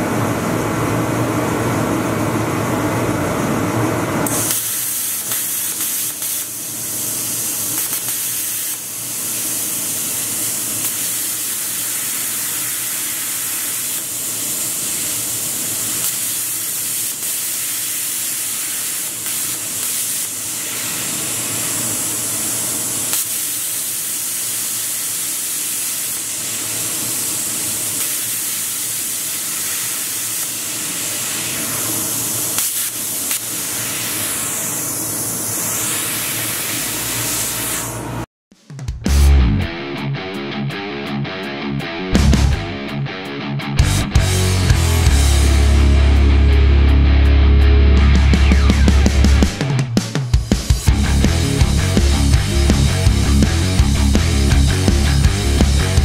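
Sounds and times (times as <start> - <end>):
plasma cutter hissing: 4.2 - 38.3.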